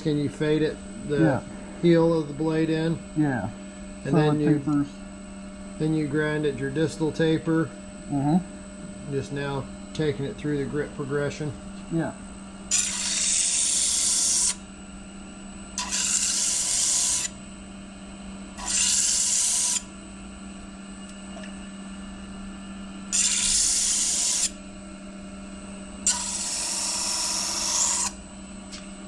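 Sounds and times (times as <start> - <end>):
knife grinding on sanding disc: 12.7 - 14.6, 15.8 - 17.4, 18.6 - 19.9, 23.1 - 24.6, 26.0 - 28.2
sander motor hum: 18.5 - 21.3, 22.0 - 24.7, 25.8 - 29.0.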